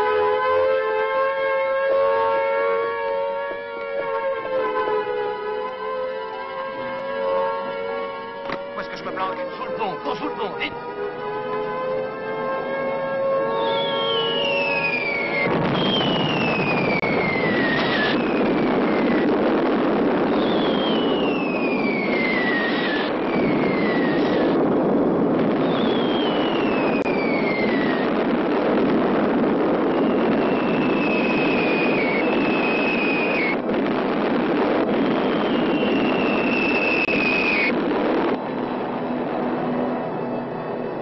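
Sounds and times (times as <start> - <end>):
air-raid siren: 0.0 - 41.0
whistles of falling bombs: 13.4 - 19.4, 20.1 - 24.6, 25.6 - 28.2, 29.7 - 33.6, 34.8 - 37.8
explosions: 13.6 - 38.9.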